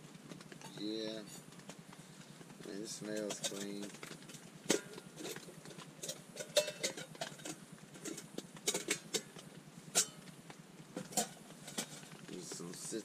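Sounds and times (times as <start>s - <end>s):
metal pots clinking: 3.0s - 10.3s, 10.9s - 13.0s.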